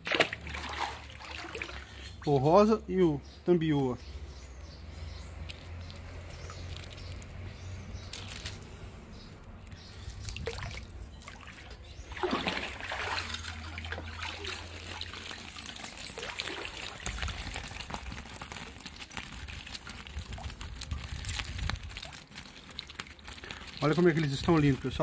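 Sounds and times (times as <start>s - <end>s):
fish flipping on wet net: 0.0s - 2.0s, 5.5s - 7.4s, 9.6s - 25.0s
water trickling and splashing: 0.0s - 2.7s, 5.3s - 9.0s, 9.6s - 25.0s.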